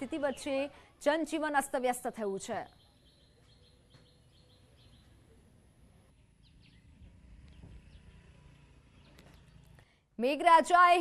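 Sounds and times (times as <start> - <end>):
faint bird chirps: 2.6 - 9.7.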